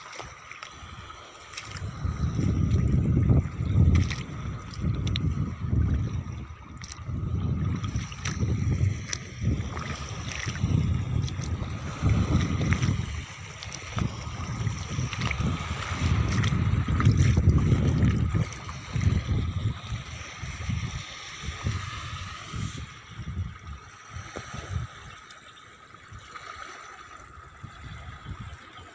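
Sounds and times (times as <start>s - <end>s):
wind buffeting microphone: 1.0s - 25.2s, 27.2s - 28.9s.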